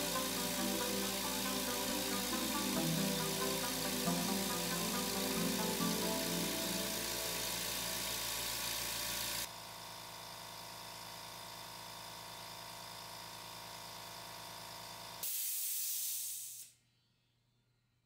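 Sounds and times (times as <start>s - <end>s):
air compressor humming: 0.0s - 11.2s
steady hiss of air: 15.2s - 16.7s.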